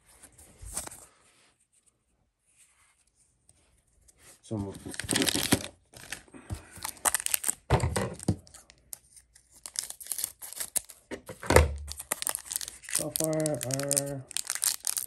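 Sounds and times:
foil wrapper crinkling: 4.8 - 11.1, 11.8 - 15.0.

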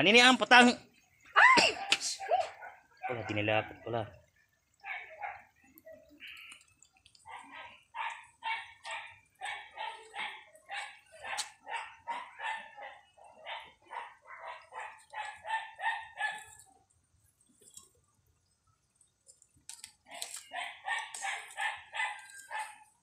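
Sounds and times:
dog barking: 2.2 - 3.9, 4.8 - 5.6, 7.2 - 16.7, 20.1 - 23.0.

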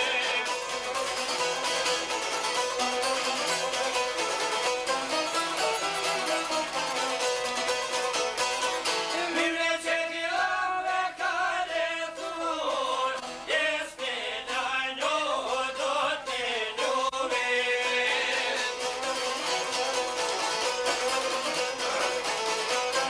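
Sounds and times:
man singing folk melody: 0.0 - 1.2, 8.8 - 23.0
violin: 0.0 - 9.3, 17.3 - 23.0
plucked lutes: 0.0 - 10.0, 11.0 - 23.0.

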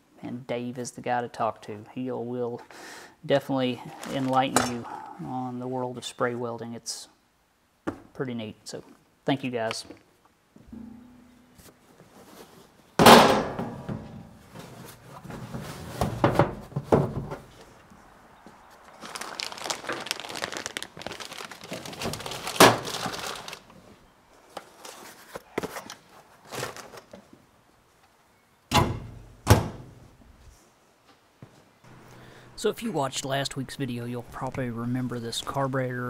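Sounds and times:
plastic bag crinkling: 3.9 - 4.6, 18.8 - 23.8
loud thunk: 13.0 - 14.2
knocks against shelves: 13.0 - 14.3, 15.4 - 17.5
cabinet doors shutting: 28.7 - 29.9.

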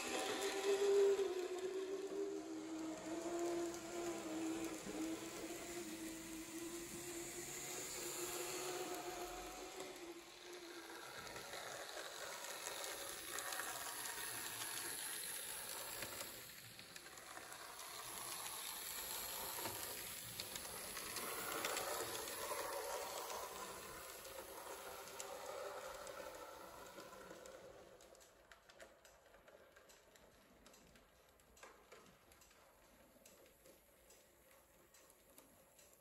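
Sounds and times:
model train hiss: 0.0 - 27.8
wheels ticking on track: 10.9 - 36.0.

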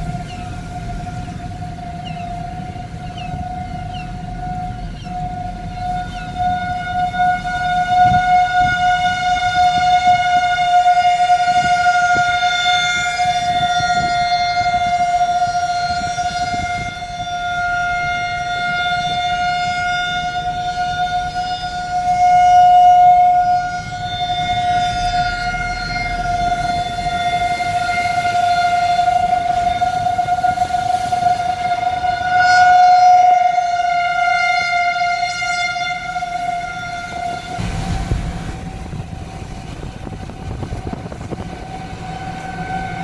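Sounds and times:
warning siren steady tone: 0.0 - 43.0.

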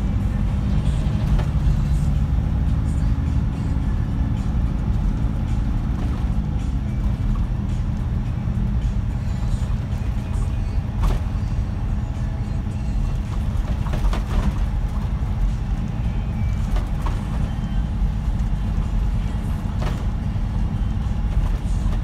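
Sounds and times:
bus engine and road rumble: 0.0 - 22.0
sharp knocks and rattles: 13.1 - 17.6.

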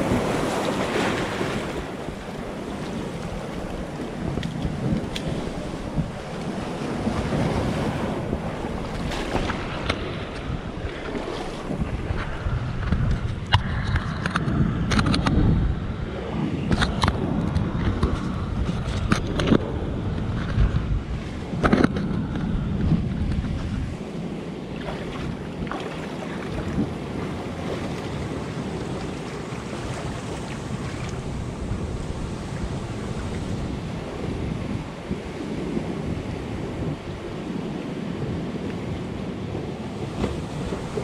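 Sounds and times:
surf washing over rocks: 0.0 - 41.0
wind buffeting microphone: 0.0 - 41.0
sharp splashes and knocks: 8.9 - 15.4, 24.8 - 26.9.

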